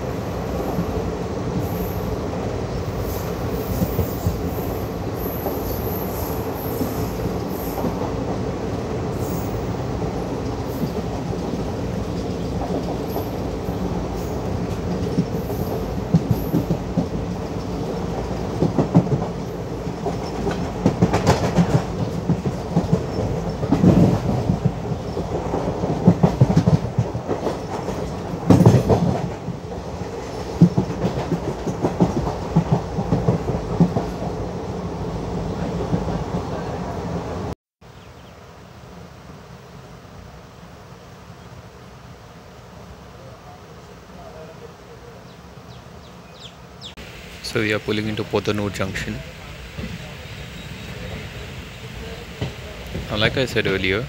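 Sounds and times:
train wheels rumbling on rails: 0.0 - 37.6, 46.3 - 54.0
wheels clattering over rail joints: 10.4 - 34.3.

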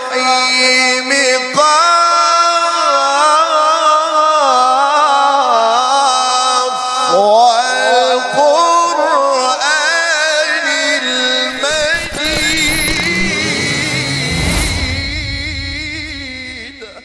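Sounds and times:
man reciting melodically: 0.0 - 12.2.

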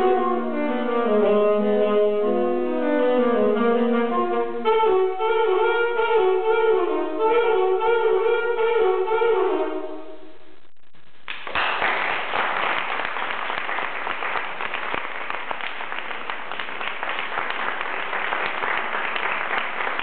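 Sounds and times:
saxophone duet chord: 0.0 - 10.4
audience applause: 11.3 - 20.0.

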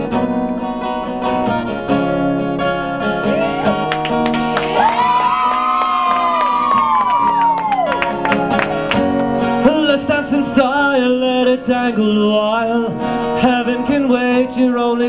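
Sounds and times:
acoustic guitar strumming: 0.0 - 15.0
crowd whooping: 3.2 - 9.2
man singing into a microphone: 9.6 - 15.0.

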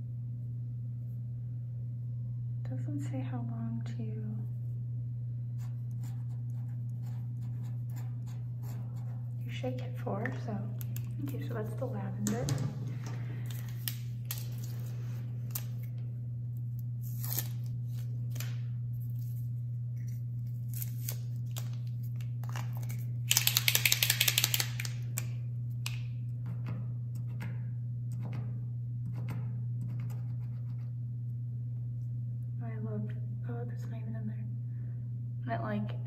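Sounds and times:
steady low hum: 0.0 - 36.0
marker clicks and taps: 23.3 - 26.0.

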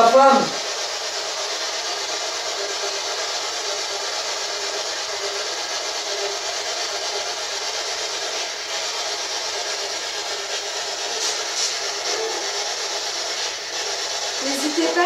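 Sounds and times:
radio static hiss: 11.1 - 12.9.

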